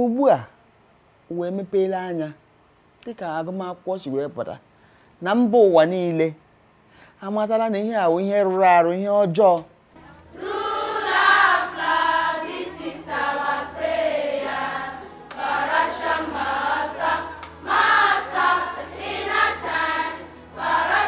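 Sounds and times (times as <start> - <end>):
children singing in unison: 10.3 - 21.0.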